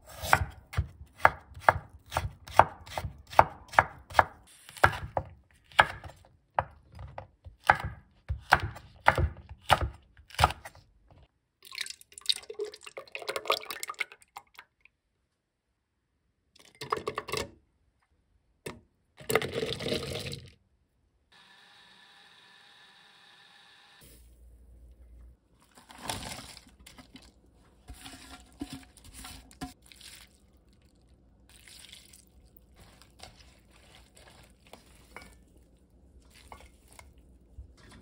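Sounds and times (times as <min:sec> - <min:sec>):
knife chopping on a cutting board: 0:00.1 - 0:10.8
liquid pouring into a blender jar: 0:11.6 - 0:14.7
blender running: 0:21.3 - 0:24.0.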